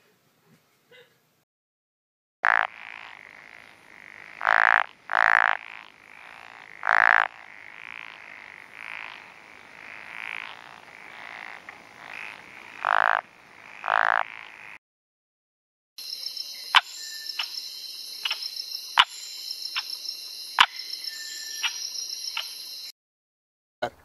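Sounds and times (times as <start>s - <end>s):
faint frogs calling: 2.4s - 14.8s, 16.1s - 22.9s
frog croaking: 2.4s - 14.8s, 18.2s - 19.2s, 20.6s - 22.6s.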